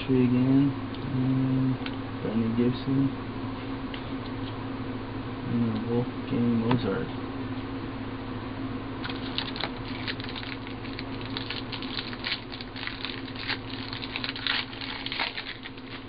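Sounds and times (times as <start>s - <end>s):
cards and wrappers rustling: 9.0s - 16.0s.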